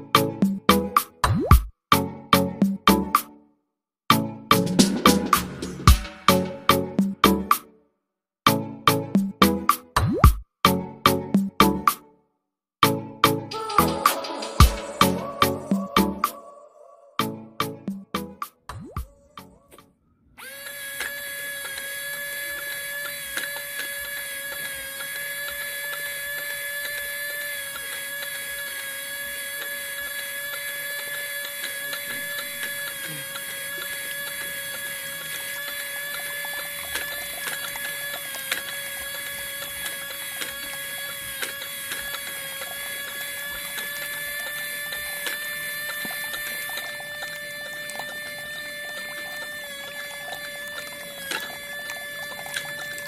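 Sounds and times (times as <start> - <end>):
small motor whining: 13.5 - 16.4, 19.3 - 53.0.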